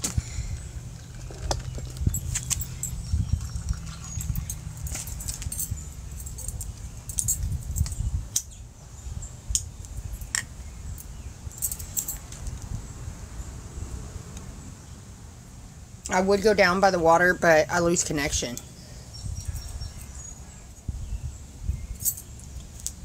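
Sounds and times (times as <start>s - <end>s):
low rumble on microphone: 0.0s - 15.2s, 18.8s - 22.2s
bangle bracelets jingling: 1.0s - 8.0s, 11.0s - 12.3s, 19.4s - 20.3s, 21.9s - 22.3s.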